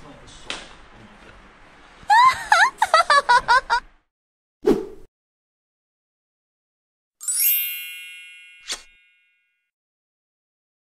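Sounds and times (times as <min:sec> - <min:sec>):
cartoon giggle: 0:02.1 - 0:03.9
bright chime ringing: 0:07.2 - 0:09.7.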